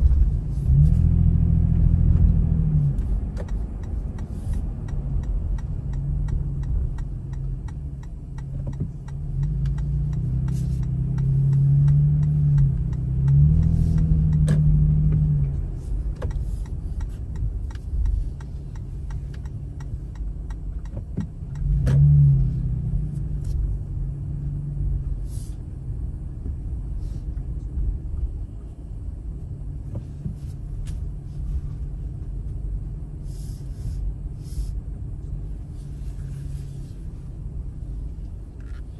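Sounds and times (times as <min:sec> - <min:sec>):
car engine and tyres rumbling: 0:00.0 - 0:38.9.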